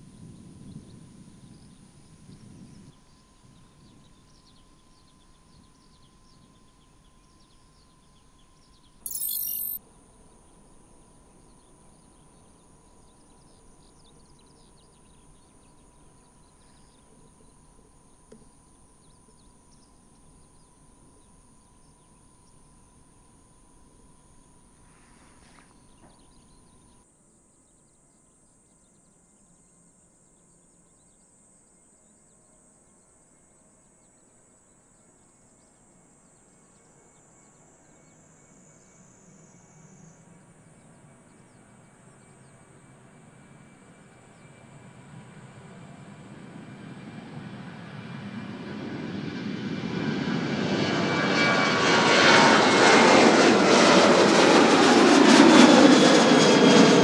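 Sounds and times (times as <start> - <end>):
insects: 3.0 - 47.0
short loud high-pitched sound: 9.1 - 9.8
small birds chirping: 9.1 - 9.8.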